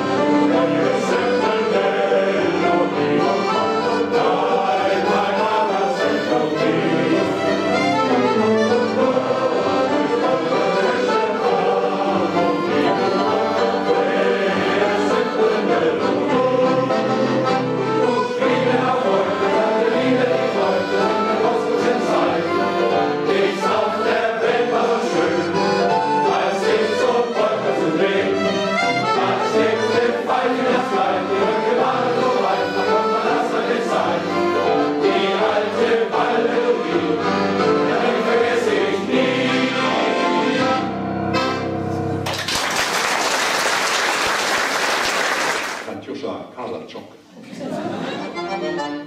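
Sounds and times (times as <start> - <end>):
men's choir singing: 0.0 - 40.9
accordion: 0.0 - 42.4, 47.8 - 49.0
applause: 42.2 - 45.9.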